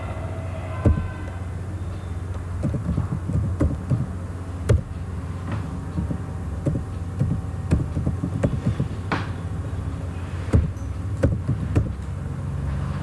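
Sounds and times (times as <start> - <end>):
steady low hum: 0.0 - 13.0
keyboard keys clicking: 2.6 - 4.1, 5.9 - 9.0.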